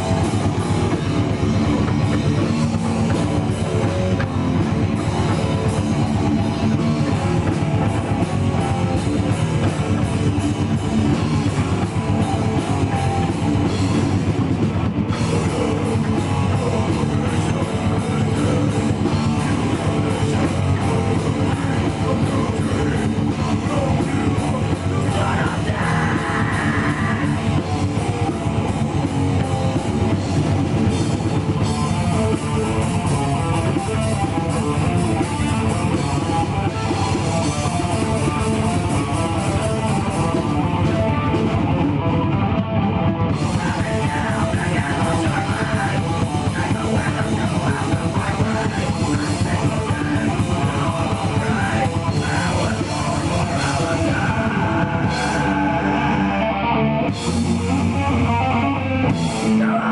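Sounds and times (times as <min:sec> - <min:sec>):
heavy metal band playing: 0:00.0 - 0:59.9
singer's vocals: 0:15.1 - 0:28.2, 0:43.3 - 0:59.9.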